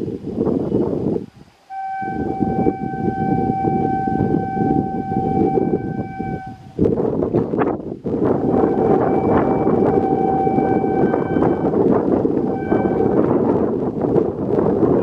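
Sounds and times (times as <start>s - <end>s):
locomotive air horn: 1.7s - 7.0s, 8.2s - 13.9s
low rumble: 1.7s - 15.0s.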